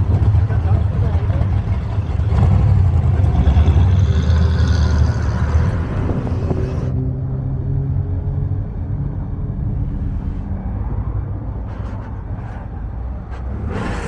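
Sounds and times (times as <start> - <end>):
car engine idling: 0.0 - 6.3.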